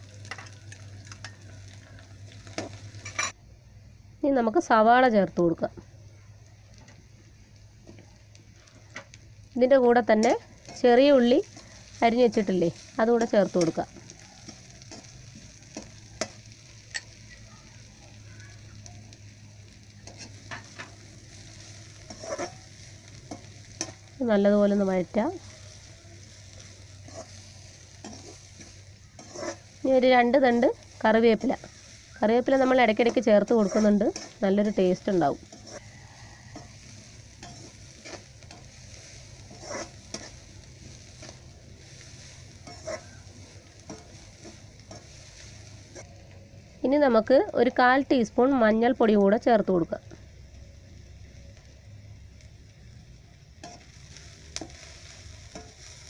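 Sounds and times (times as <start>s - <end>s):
onions sizzling in oil: 0.0s - 56.0s
spoon scraping a pan: 2.5s - 3.4s, 10.2s - 17.4s, 20.0s - 24.1s, 25.4s - 46.1s, 53.6s - 56.0s.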